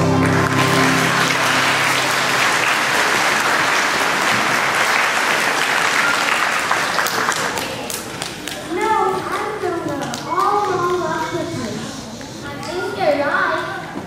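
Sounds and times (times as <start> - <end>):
held music chord: 0.0 - 3.5
audience applauding: 0.0 - 8.6.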